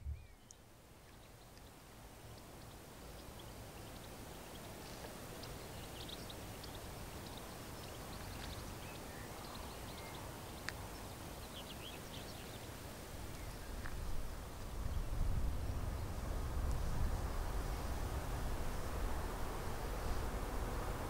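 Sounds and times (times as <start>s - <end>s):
small birds chirping: 0.0s - 16.2s.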